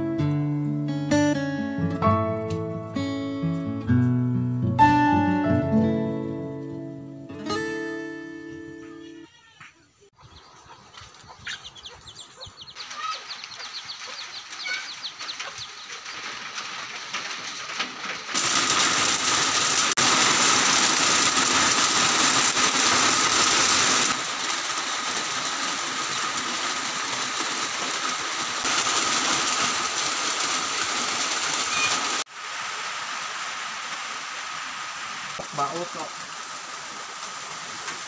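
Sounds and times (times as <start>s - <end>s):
birds chirping: 8.4s - 16.5s
rain falling on trees: 12.7s - 38.0s.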